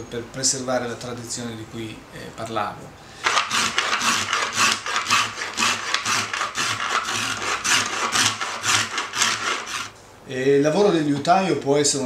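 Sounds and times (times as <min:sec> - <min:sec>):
hand tool rasping on wood: 0:03.2 - 0:09.9.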